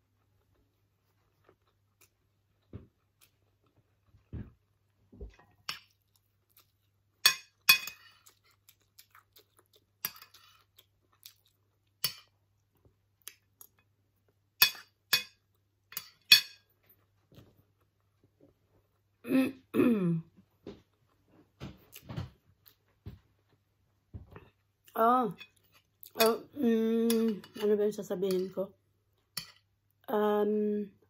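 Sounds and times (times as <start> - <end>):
metal spoon clinking on ceramic plate: 7.2 - 8.1, 14.6 - 16.7.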